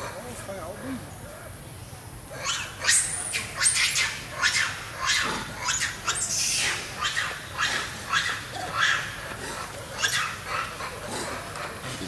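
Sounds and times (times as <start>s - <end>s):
high-pitched monkey squeal: 2.4s - 9.1s, 10.0s - 10.7s
macaques screaming: 2.4s - 11.8s.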